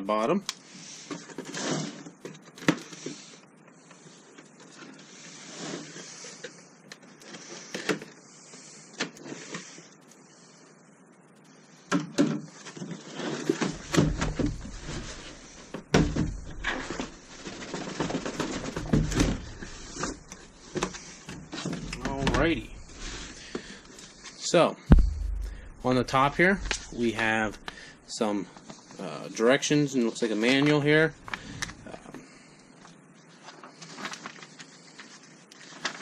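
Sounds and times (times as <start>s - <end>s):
cardboard scraping and rustling: 12.5s - 23.9s
knocks and dull thumps: 24.9s - 27.7s.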